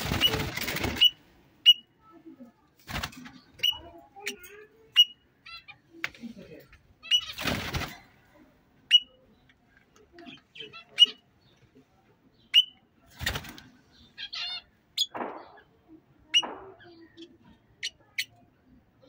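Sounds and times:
parrots chirping: 0.0s - 1.9s, 3.4s - 5.8s, 7.0s - 7.4s, 8.9s - 9.2s, 10.6s - 11.2s, 13.9s - 15.7s, 16.3s - 18.4s.

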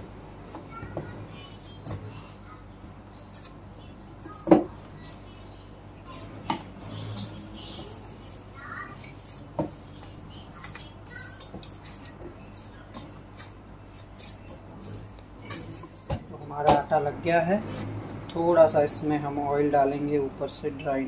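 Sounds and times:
dough scraping and pressing: 6.5s - 16.9s.

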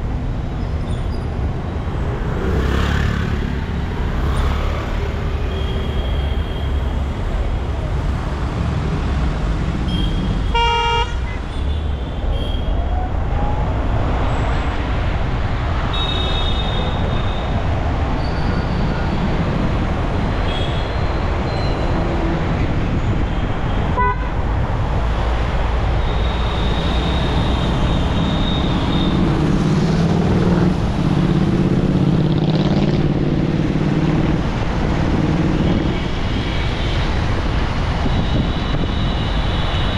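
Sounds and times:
traffic rumble: 0.0s - 39.9s
vehicle horns tooting: 9.9s - 11.5s, 23.9s - 24.4s.

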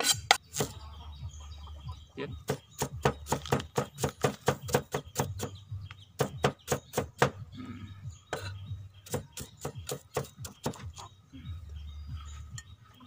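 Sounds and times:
cleaver chopping on wooden block: 2.4s - 5.5s, 6.2s - 7.4s, 9.1s - 10.8s.

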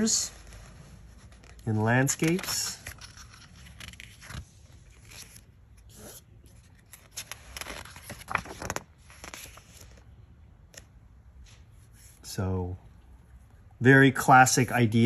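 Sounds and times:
book pages turning: 0.0s - 10.1s.

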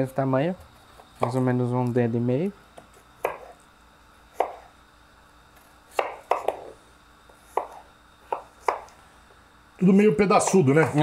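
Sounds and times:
knife chopping on wooden board: 1.2s - 1.4s, 2.8s - 3.6s, 4.3s - 4.7s, 5.9s - 6.8s, 7.4s - 9.0s.

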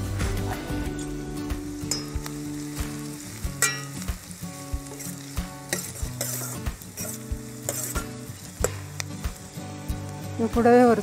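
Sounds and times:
onions sizzling in oil: 0.0s - 11.0s
ringing metal clink: 3.6s - 3.9s
ladle scraping a pan: 4.8s - 9.0s.

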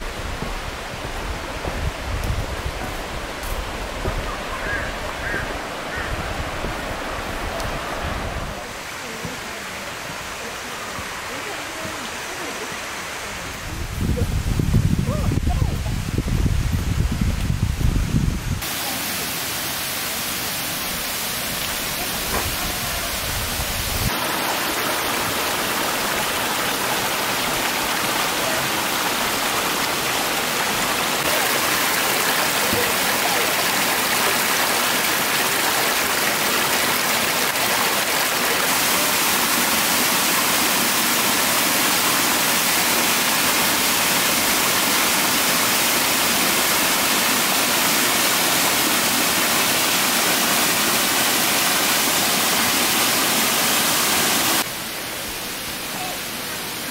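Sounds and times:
water rushing: 0.0s - 17.8s, 18.4s - 56.9s.

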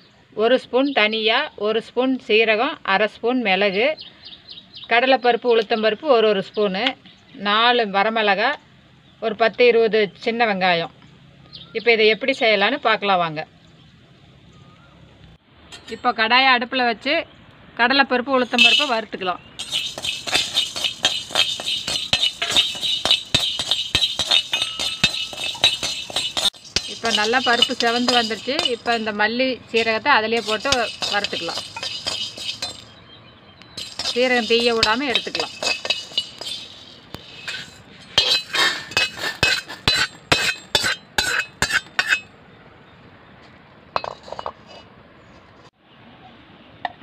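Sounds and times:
spoon scraping an iron pan: 18.4s - 33.0s, 33.8s - 42.3s, 44.0s - 44.9s
lentils rattling in a pan: 19.6s - 32.9s, 33.8s - 40.9s.

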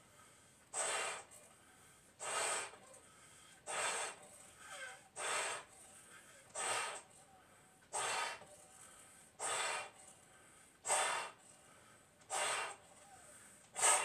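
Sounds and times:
loud rush of breath: 0.0s - 14.0s
person blowing up balloons: 0.7s - 1.3s, 2.2s - 2.8s, 3.7s - 5.7s, 6.5s - 7.1s, 7.9s - 8.5s, 9.4s - 10.0s, 10.8s - 11.4s, 12.3s - 12.9s, 13.7s - 14.0s.

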